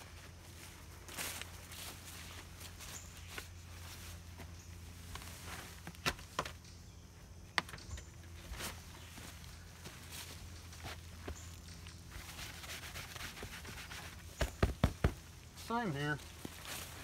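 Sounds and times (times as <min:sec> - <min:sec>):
footsteps and scuffs: 0:00.0 - 0:06.5, 0:08.3 - 0:17.0
sharp knocks: 0:14.4 - 0:15.2.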